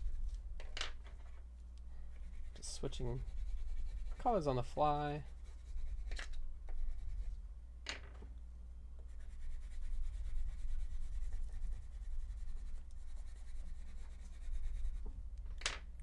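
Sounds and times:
crayon scribbling on paper: 0.0s - 0.3s, 2.1s - 7.3s, 9.1s - 15.0s
steady low hum: 0.0s - 16.0s.

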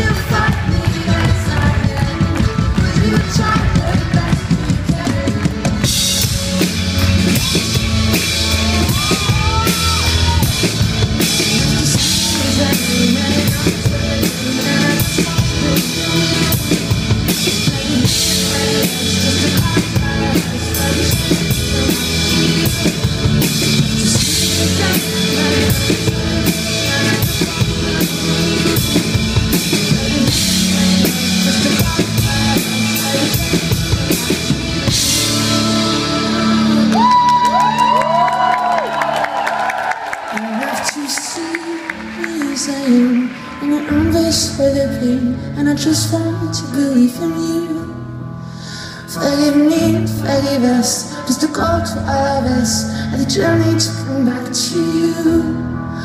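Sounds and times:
keyboard chords: 0.0s - 40.2s
drum kit beat: 0.0s - 44.2s
live pop-rock band playing: 0.0s - 56.0s.

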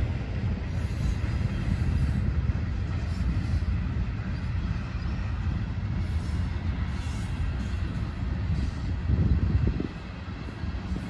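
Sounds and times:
freight train rumbling on rails: 0.0s - 11.0s.

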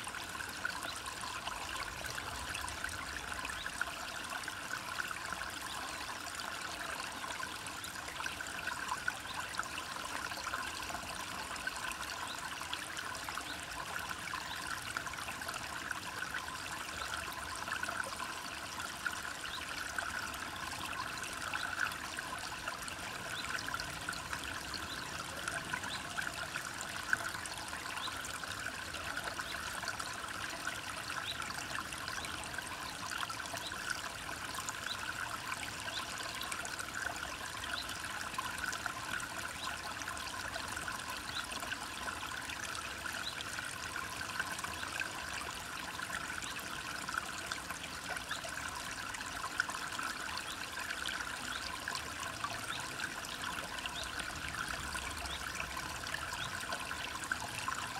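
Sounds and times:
stream trickling over stones: 0.0s - 57.9s.

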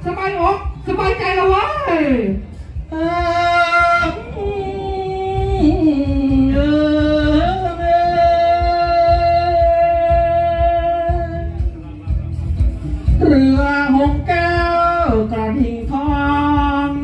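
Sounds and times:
steady low beat: 0.0s - 17.0s
man singing into a microphone: 2.9s - 12.1s, 13.1s - 17.0s.

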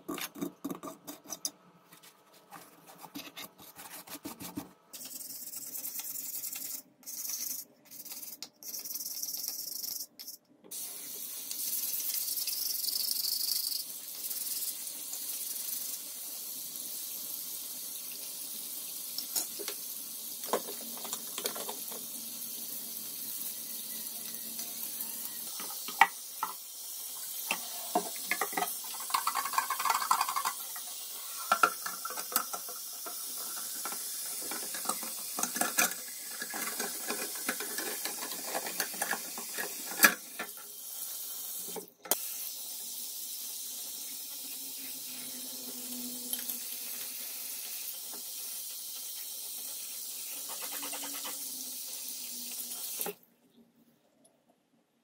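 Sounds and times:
toothbrush scrubbing metal parts: 2.5s - 10.4s, 27.4s - 40.6s, 48.9s - 52.0s
tap water running into sink: 19.0s - 22.2s, 25.5s - 40.8s.

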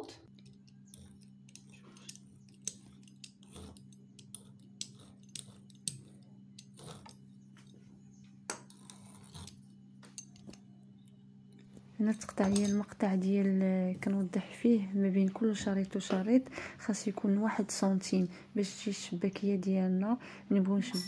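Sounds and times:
steady low hum: 0.0s - 21.0s
pastry wheel scraping dough: 8.6s - 9.8s.

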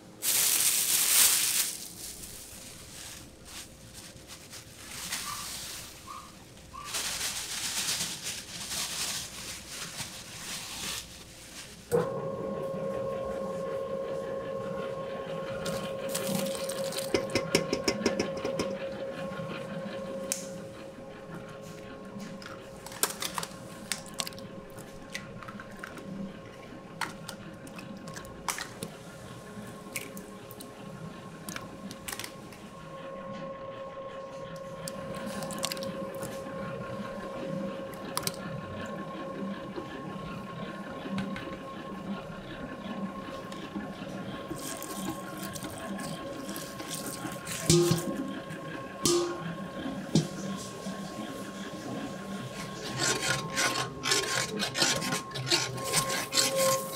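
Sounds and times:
steady machine hum: 0.0s - 56.9s.

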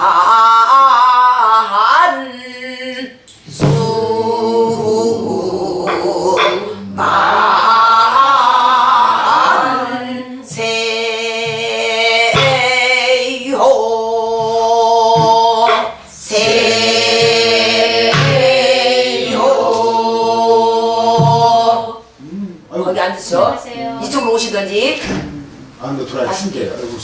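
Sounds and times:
barrel drum thuds: 3.5s - 4.0s, 11.4s - 13.0s, 21.1s - 21.7s
woman singing folk song: 10.3s - 16.0s.

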